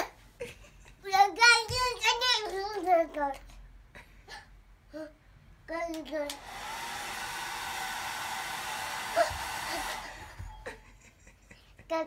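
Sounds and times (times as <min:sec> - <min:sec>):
child's voice: 0:01.0 - 0:03.6, 0:04.9 - 0:06.4
hair dryer blowing: 0:06.3 - 0:10.9.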